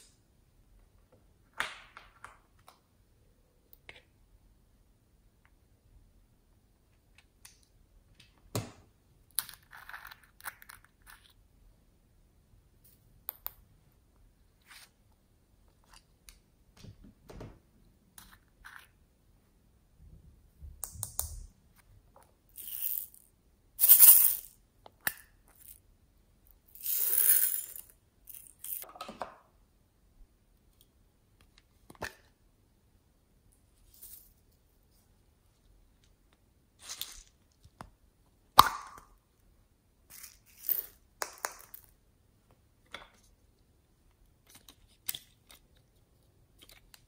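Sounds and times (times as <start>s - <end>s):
beads pouring and rattling: 22.6s - 24.6s, 26.7s - 28.8s.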